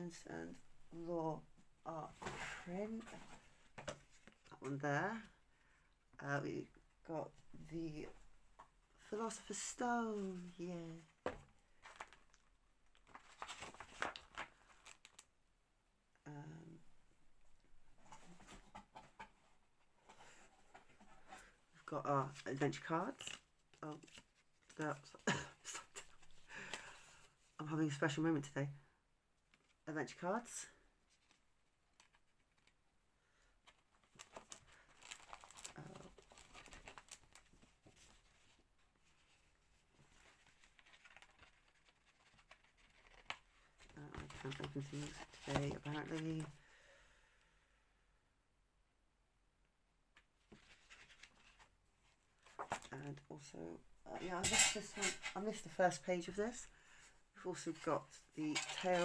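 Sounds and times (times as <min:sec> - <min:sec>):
cards and packaging rustling: 0:09.3 - 0:15.3, 0:20.0 - 0:27.4, 0:31.1 - 0:32.8, 0:33.5 - 0:46.7, 0:50.4 - 0:51.8, 0:52.4 - 0:53.2, 0:57.6 - 0:59.0
packaging rustling and clicking: 0:33.7 - 0:38.1.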